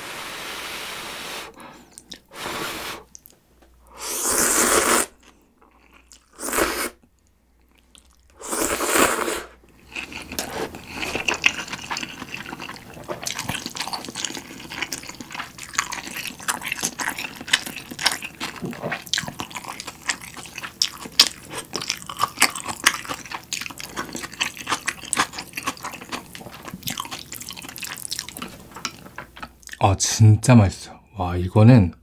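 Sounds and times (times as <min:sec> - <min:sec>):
slurping noodles: 0:00.1 - 0:03.2, 0:04.0 - 0:05.3, 0:06.2 - 0:07.0, 0:08.4 - 0:20.7
wet chewing: 0:09.7 - 0:29.8.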